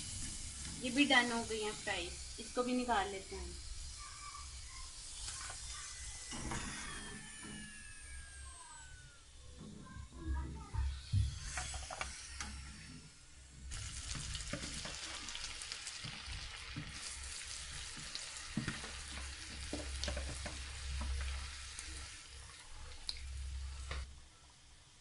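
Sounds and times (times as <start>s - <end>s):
fries sizzling in oil: 0.0s - 8.8s, 13.6s - 25.0s.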